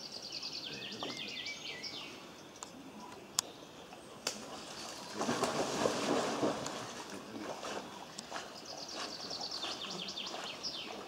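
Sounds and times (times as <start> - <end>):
dog splashing into water: 4.3 - 8.5
water sloshing: 4.3 - 11.0.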